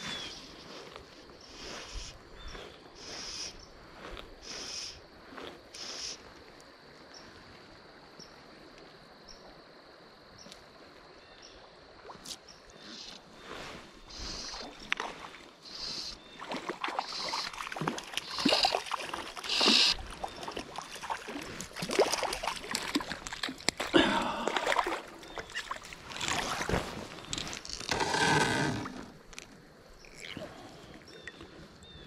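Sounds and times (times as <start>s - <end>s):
fish splashing in water: 14.2s - 27.3s.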